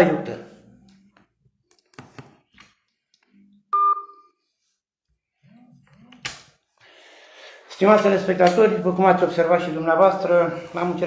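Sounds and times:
electronic telephone beep: 3.7 - 4.3.

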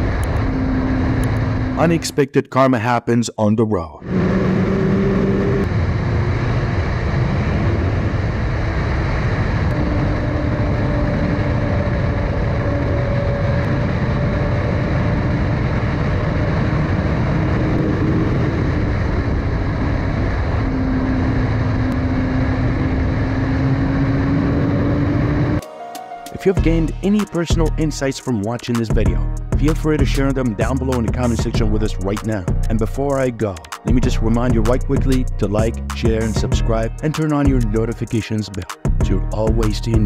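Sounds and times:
wind rushing over microphone: 0.0 - 2.1, 4.0 - 25.6
motorcycle engine cruising: 4.1 - 25.6.

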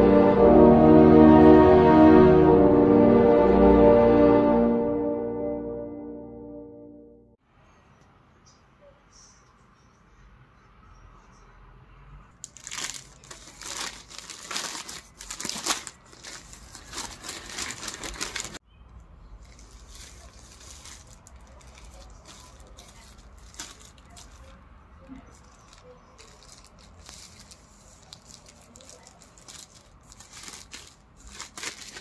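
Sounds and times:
packaging crinkling: 12.4 - 18.6, 19.4 - 24.6, 25.2 - 32.0
plastic bags rustling: 12.4 - 18.6, 19.4 - 32.0.

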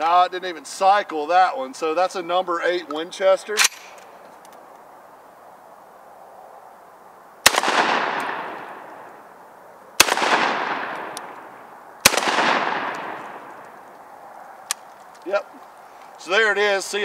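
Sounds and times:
shotgun shots with echo: 7.4 - 8.8, 10.0 - 13.6.

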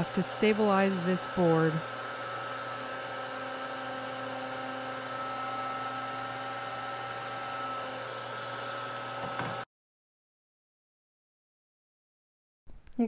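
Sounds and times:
router spinning: 0.0 - 9.6.

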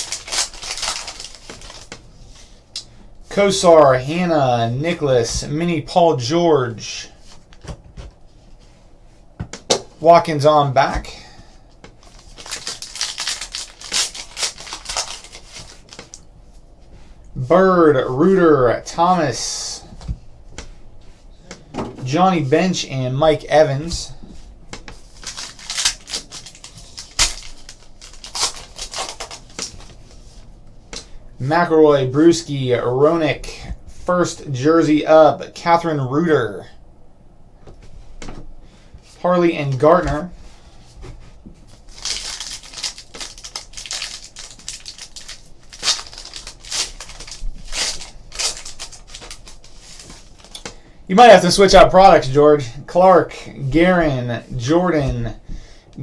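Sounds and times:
wrapper being torn open: 0.0 - 1.9, 12.0 - 16.2, 25.2 - 29.8, 41.9 - 50.6.

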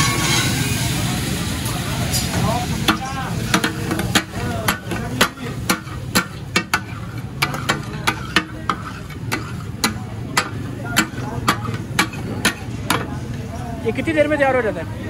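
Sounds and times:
meat sizzling: 0.0 - 12.8
metal spatulas clacking on griddle: 2.1 - 13.1.

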